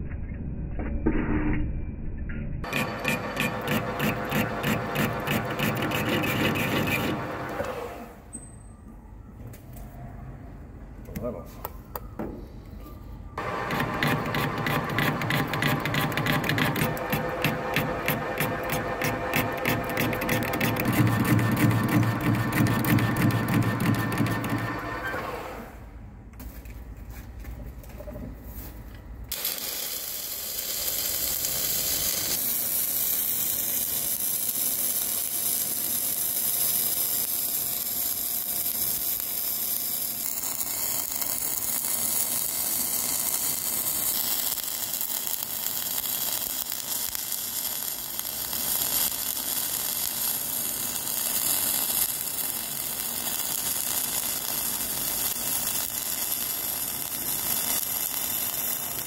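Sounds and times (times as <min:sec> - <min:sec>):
arc welding hiss: 0:29.3 - 0:59.0.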